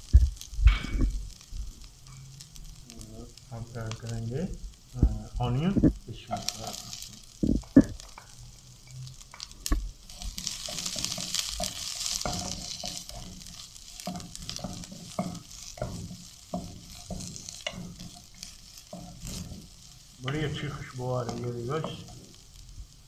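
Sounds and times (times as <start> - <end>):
vegetables sizzling in oil: 0.0 - 23.0
wooden spatula scraping a pan: 5.4 - 8.2, 10.1 - 22.4.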